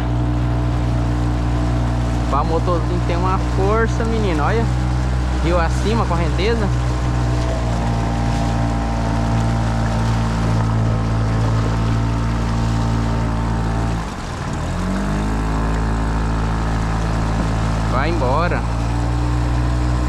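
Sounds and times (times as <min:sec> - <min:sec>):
outboard motor running: 0:00.0 - 0:20.0.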